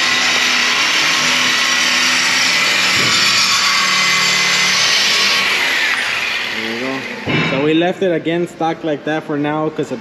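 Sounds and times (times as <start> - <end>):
power tool cutting steel pipe: 0.0 - 7.3.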